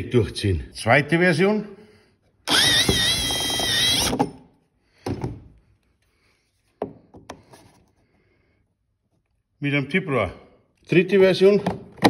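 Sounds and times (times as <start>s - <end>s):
power drill whining through plastic: 2.4s - 4.4s.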